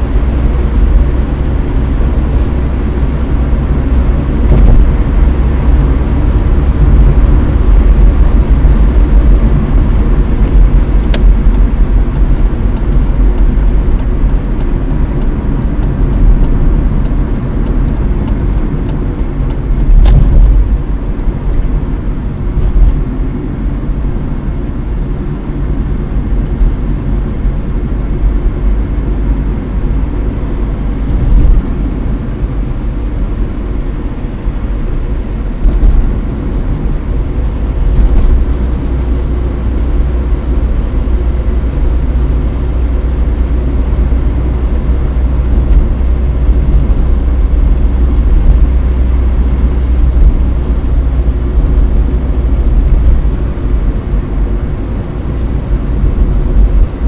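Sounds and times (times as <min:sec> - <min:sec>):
car engine and tyre rumble: 0:00.0 - 0:57.0
car bumps: 0:19.9 - 0:20.8.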